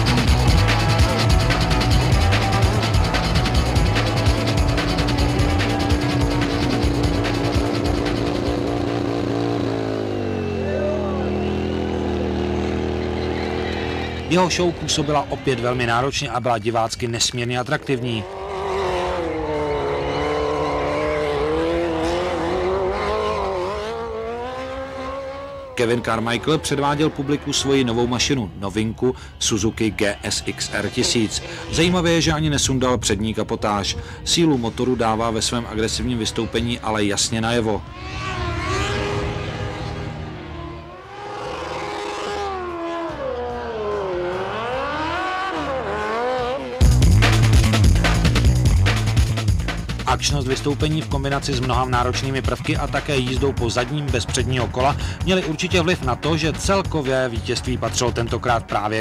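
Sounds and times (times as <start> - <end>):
loud music: 0.0 - 9.7, 44.0 - 59.0
motorcycle engine high revs: 0.0 - 14.7, 17.8 - 28.1, 35.9 - 49.7.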